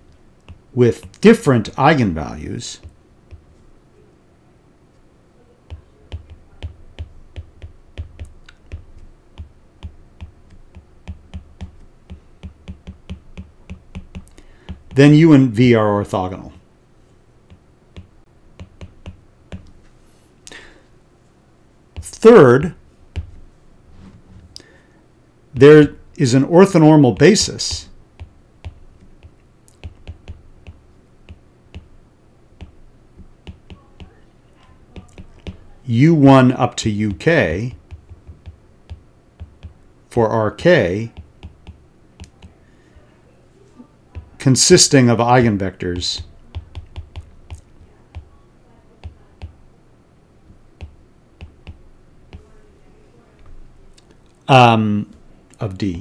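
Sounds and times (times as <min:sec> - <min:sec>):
stylus tapping on glass screen: 0:00.4 - 0:01.2, 0:05.7 - 0:15.0, 0:17.5 - 0:19.8, 0:23.1 - 0:23.4, 0:27.2 - 0:31.9, 0:32.6 - 0:34.2, 0:34.9 - 0:35.8, 0:37.7 - 0:39.8, 0:41.1 - 0:42.6, 0:46.2 - 0:48.3, 0:49.0 - 0:49.6, 0:50.5 - 0:52.6.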